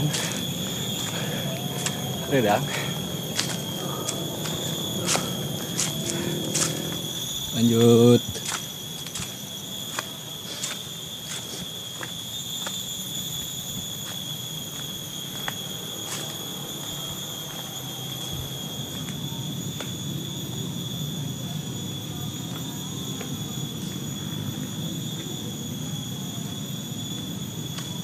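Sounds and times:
footsteps on dirt trail: 0.0 - 19.9
high-pitched insect buzzing: 0.0 - 28.0.

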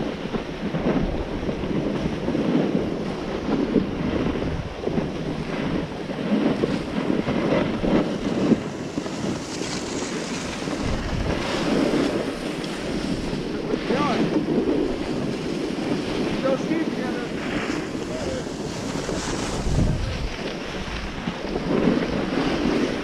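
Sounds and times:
skis scraping on packed snow: 0.0 - 23.0
wind rushing over microphone: 0.0 - 23.0.

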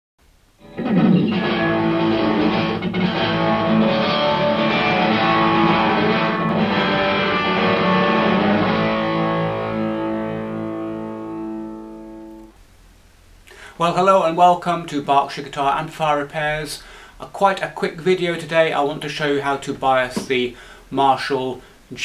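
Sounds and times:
distorted electric guitar rock music: 0.6 - 12.6.

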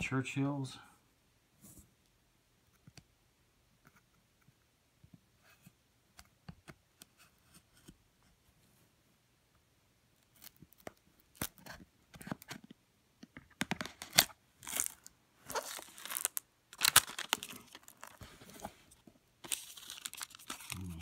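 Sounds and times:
box being opened: 13.6 - 18.8, 19.4 - 21.0.

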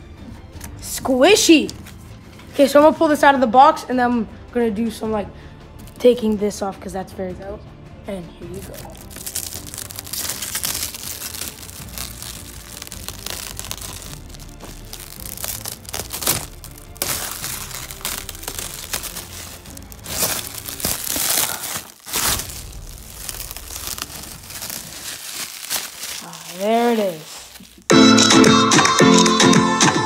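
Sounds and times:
background music: 0.0 - 30.0
plastic wrap crinkling and tearing: 8.5 - 27.9.

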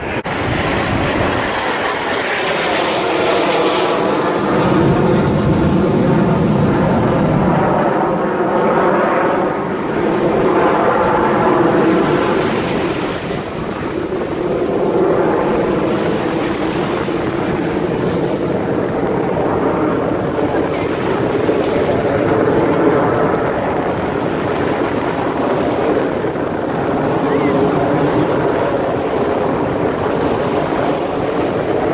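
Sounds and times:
jet engines rumbling overhead: 0.0 - 31.9.

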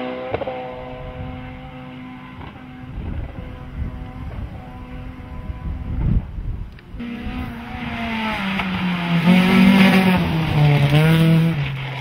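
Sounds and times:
engine revving: 0.0 - 12.0
rally car engine under hard load: 0.0 - 12.0.

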